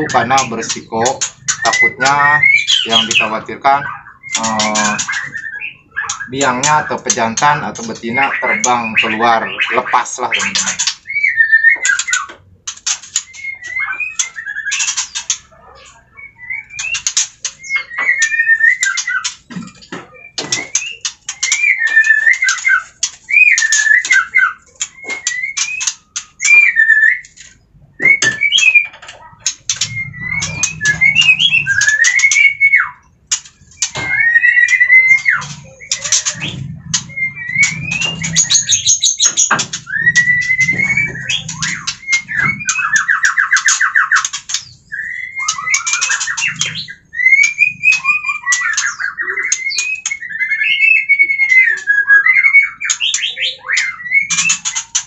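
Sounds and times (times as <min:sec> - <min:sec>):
birds whistling calls: 0:00.0 - 0:55.0
rapid bird clicking: 0:10.4 - 0:15.5, 0:33.3 - 0:50.6.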